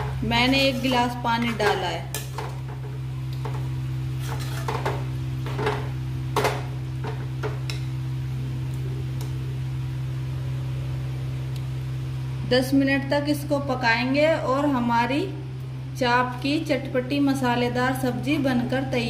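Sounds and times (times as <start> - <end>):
steady low hum: 0.0 - 19.0
spoon scraping metal pan: 0.3 - 2.3, 4.2 - 5.0.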